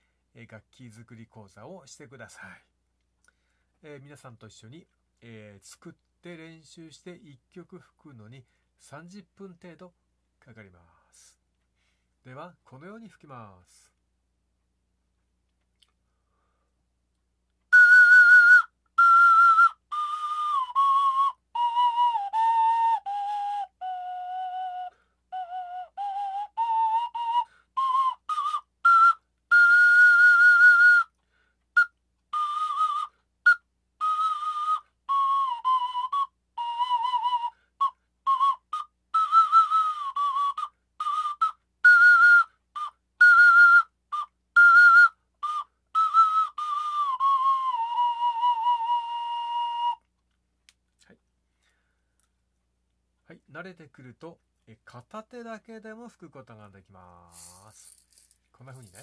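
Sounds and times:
homemade whistle playing tune: 17.7s - 50.1s, 57.3s - 59.0s.

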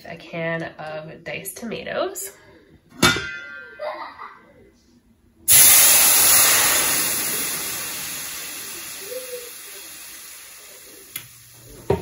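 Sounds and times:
tomatoes sizzling in a pan: 5.5s - 12.0s.

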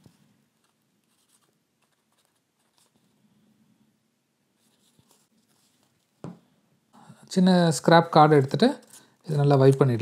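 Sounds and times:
paper card rustling: 0.0s - 3.1s, 4.6s - 6.1s, 8.4s - 10.0s.

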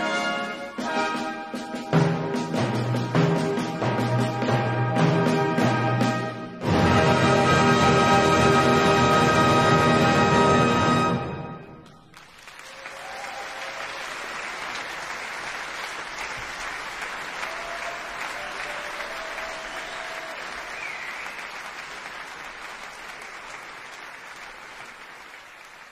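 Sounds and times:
brass band chord ringing: 0.0s - 11.8s
audience applause: 12.0s - 25.9s.

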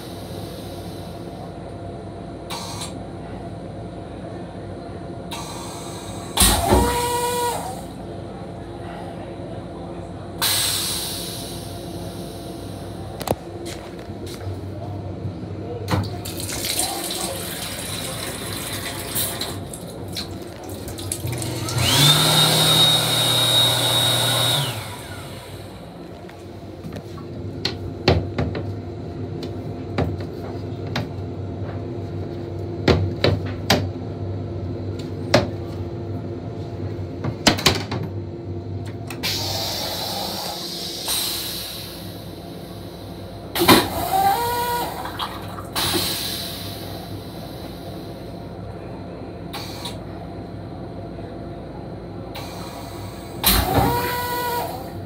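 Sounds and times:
train toilet flushing: 0.0s - 1.5s, 5.3s - 8.0s, 10.4s - 13.1s, 15.9s - 26.1s, 39.2s - 48.4s, 52.3s - 55.0s
railcar running noise: 0.0s - 22.1s, 24.5s - 55.0s.

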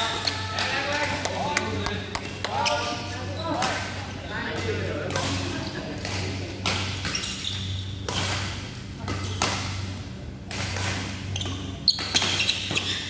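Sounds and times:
shoes squeaking: 1.7s - 3.9s, 7.0s - 8.0s, 11.2s - 13.0s.

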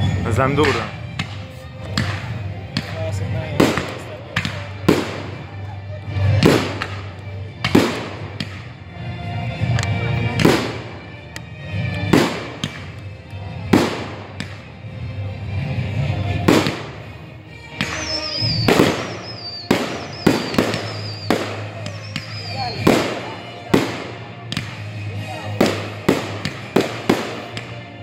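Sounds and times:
fireworks crackling: 0.0s - 8.8s, 9.6s - 14.8s, 15.6s - 28.0s
firework bangs: 0.5s - 5.6s, 6.2s - 8.8s, 10.3s - 11.1s, 12.0s - 13.0s, 13.6s - 14.7s, 16.3s - 28.0s
high wavering whistle: 17.8s - 22.9s.

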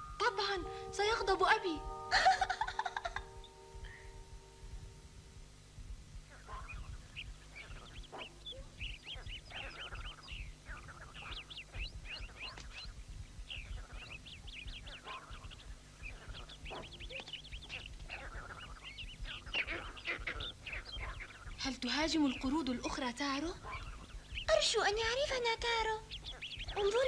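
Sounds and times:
steady low hum: 0.0s - 27.0s
high chirping animal calls: 6.2s - 27.0s.

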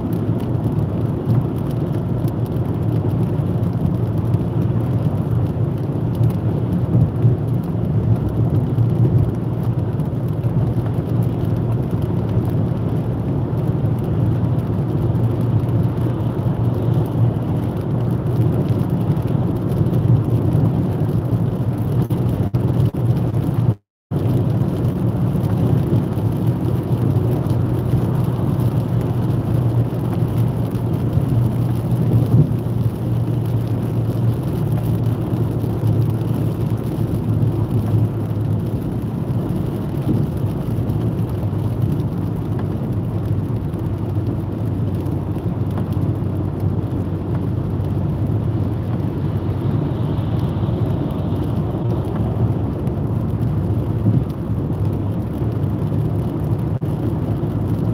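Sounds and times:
engine and tyre rumble: 0.0s - 57.9s
hiss from wet road: 24.3s - 57.9s.

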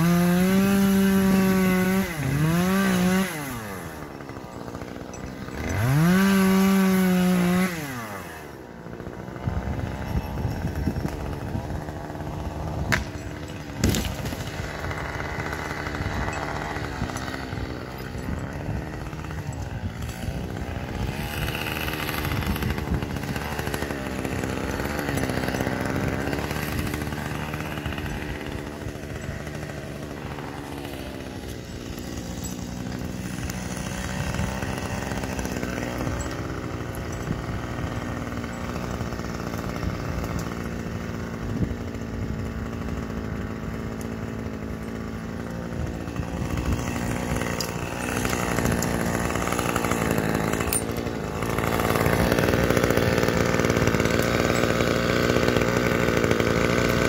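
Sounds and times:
chainsaw engine revving: 0.0s - 57.0s.

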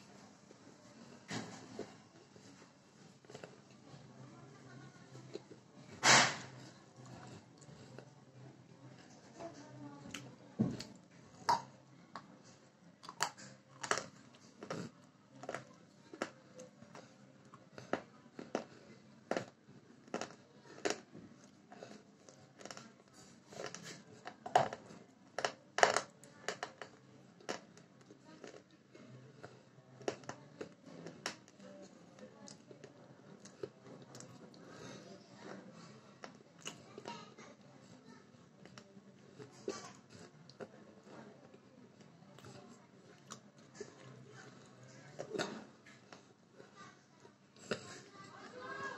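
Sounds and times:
person chewing crunchy food: 13.0s - 22.0s, 22.6s - 22.9s, 23.6s - 27.7s, 28.4s - 28.7s.

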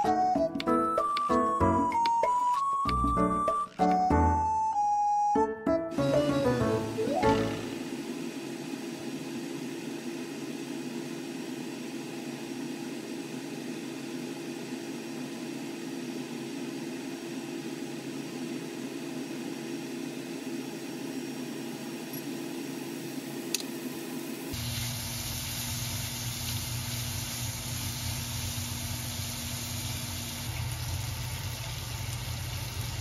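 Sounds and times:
ham sizzling in a pan: 24.4s - 33.0s.

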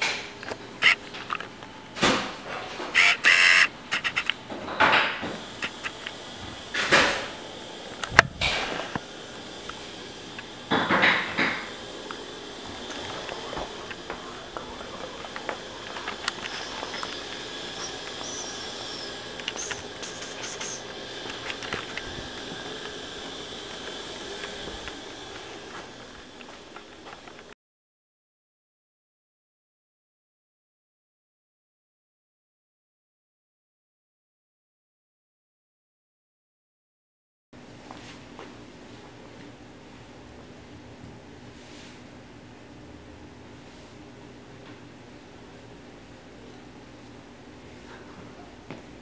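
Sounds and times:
high squeaks: 0.8s - 1.0s, 3.0s - 4.3s, 14.2s - 21.6s
steady hiss: 5.3s - 27.5s.

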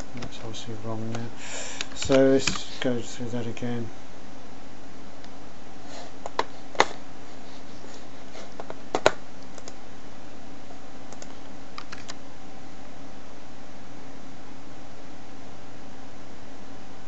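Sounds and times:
computer keys and mouse clicks: 11.1s - 12.2s.

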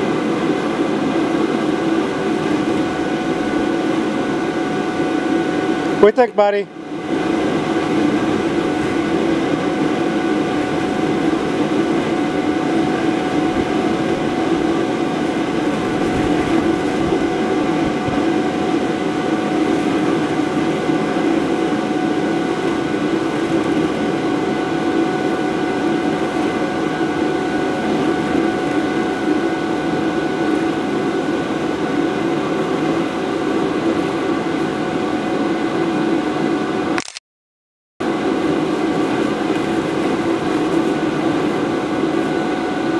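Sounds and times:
electric blower humming and whining: 0.0s - 37.0s, 38.0s - 42.9s.

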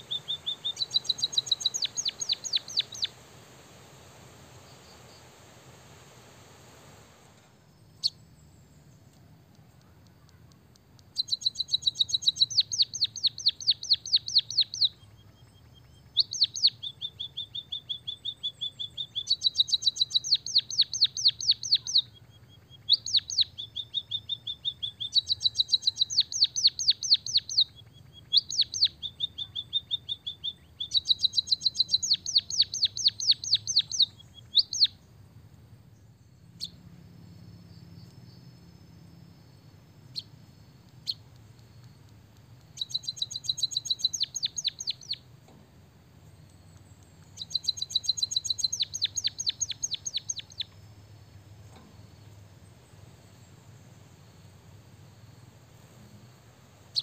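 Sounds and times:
bird singing rolled trills: 0.0s - 9.1s, 11.1s - 57.0s.

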